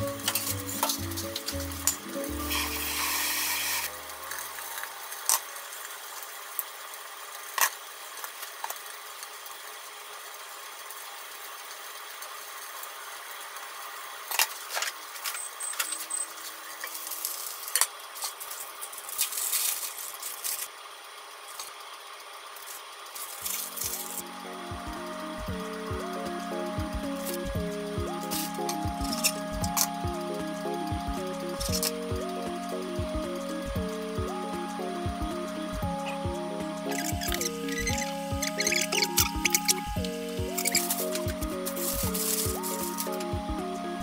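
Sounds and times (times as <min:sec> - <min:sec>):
food sizzling in a pan: 0:00.2 - 0:24.2, 0:36.9 - 0:43.3.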